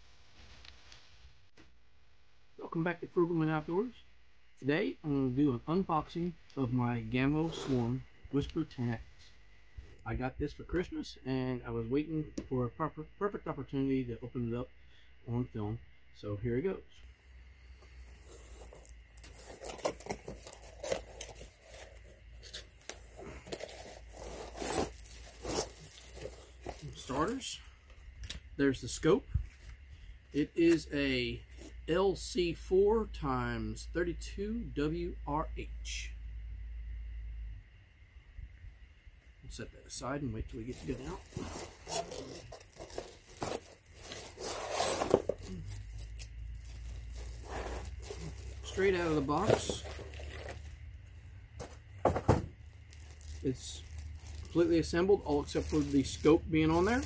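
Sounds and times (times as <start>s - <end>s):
cardboard crackles: 18.0s - 27.4s, 40.6s - 57.0s
cardboard tearing and scraping: 18.1s - 27.4s, 40.7s - 50.7s, 51.6s - 54.8s, 55.4s - 57.0s.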